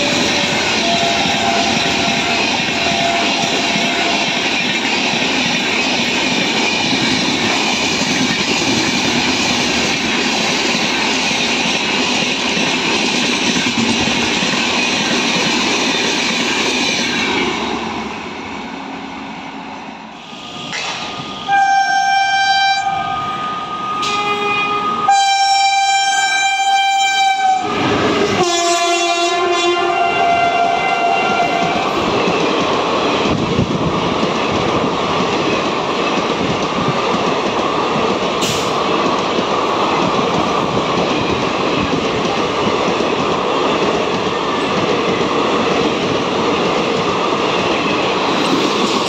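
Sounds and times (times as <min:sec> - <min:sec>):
train coaches rushing past: 0:00.0 - 0:49.0
locomotive horn blasts: 0:00.4 - 0:04.4, 0:21.5 - 0:31.9.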